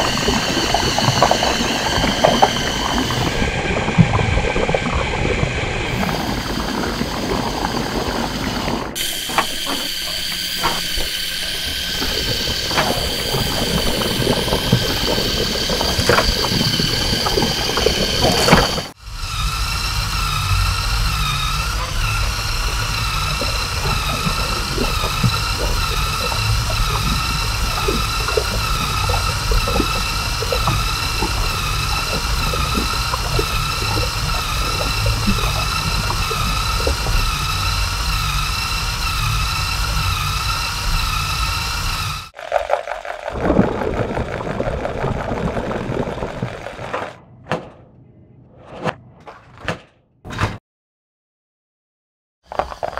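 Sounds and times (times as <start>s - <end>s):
electric motor whining: 0.0s - 42.4s.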